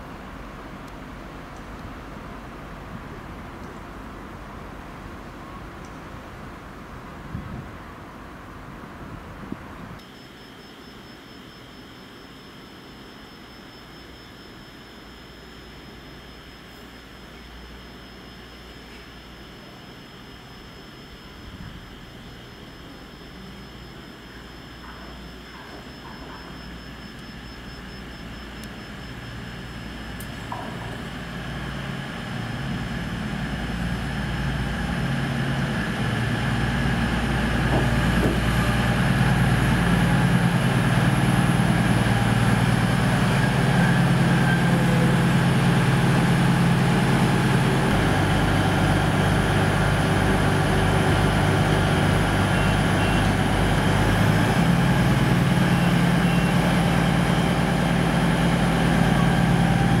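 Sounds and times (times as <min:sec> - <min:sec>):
diesel train engines idling: 0:16.8 - 1:00.0.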